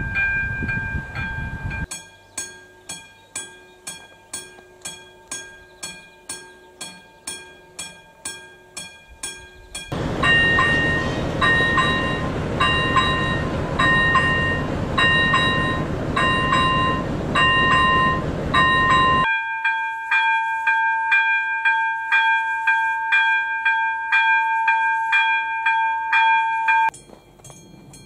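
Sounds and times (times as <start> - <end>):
level crossing warning bell: 0.0 - 28.0
second crossing bell: 0.0 - 28.0
loud steady rushing noise: 9.9 - 19.3.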